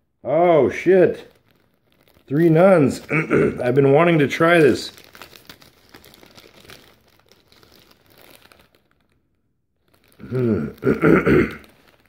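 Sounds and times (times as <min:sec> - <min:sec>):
man's voice: 0:00.2 - 0:01.3, 0:02.3 - 0:05.0
plastic bag crinkling: 0:00.4 - 0:12.0.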